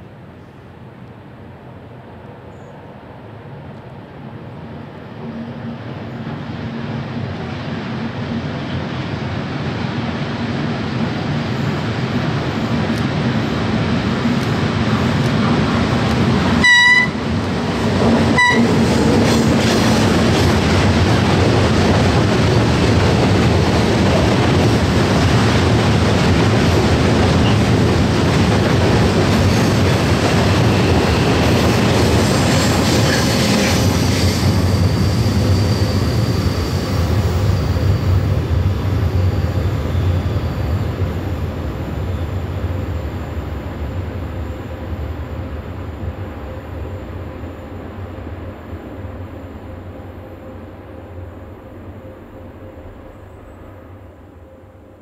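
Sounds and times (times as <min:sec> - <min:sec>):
train rumble and wheel clatter: 0:00.0 - 0:55.0
locomotive horn: 0:16.6 - 0:17.4, 0:18.3 - 0:19.0.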